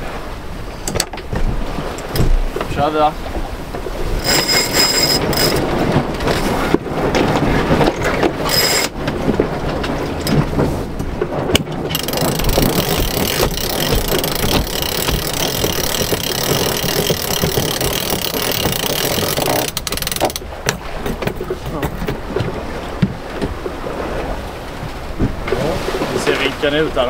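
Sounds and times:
water rushing along hull: 0.0s - 27.0s
wind buffeting microphone: 0.0s - 27.0s
gear knocking on deck: 4.2s - 6.5s, 11.9s - 23.2s.

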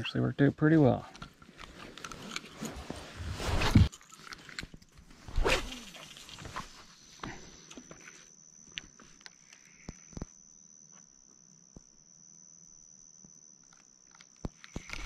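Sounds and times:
insect trilling: 5.3s - 15.0s.

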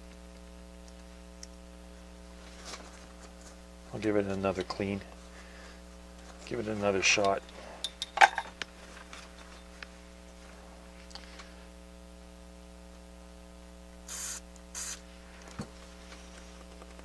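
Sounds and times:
electrical hum: 0.0s - 17.0s
aerosol spray hisses: 14.1s - 15.1s.

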